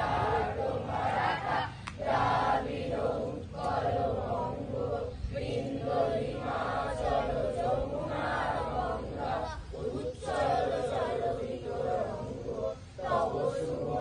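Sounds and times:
children chanting in unison: 0:00.0 - 0:14.0.

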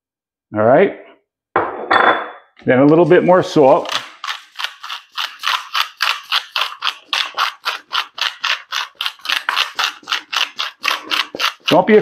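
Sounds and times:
salt grinder ratcheting: 0:03.8 - 0:12.0.

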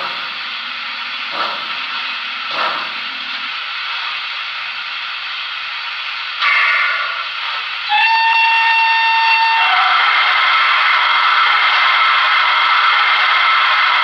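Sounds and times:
steam hiss: 0:00.0 - 0:14.0
steam whistle blast: 0:06.4 - 0:14.0.

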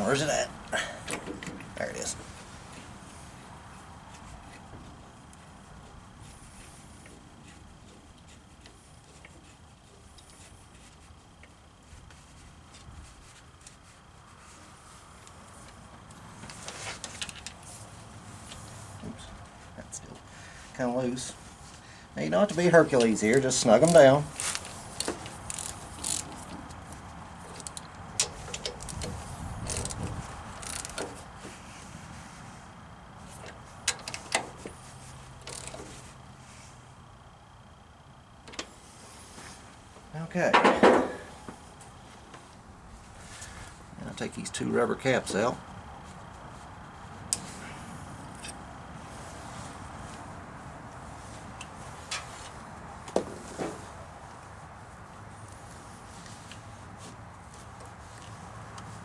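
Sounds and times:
ratchet clicking on bolts: 0:23.8 - 0:26.6, 0:27.5 - 0:30.0, 0:30.6 - 0:31.2, 0:33.9 - 0:34.4, 0:35.4 - 0:35.8.

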